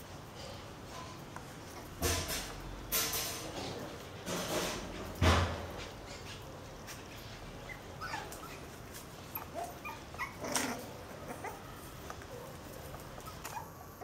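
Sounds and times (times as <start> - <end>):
puppies whimpering and squeaking: 7.5 - 14.0.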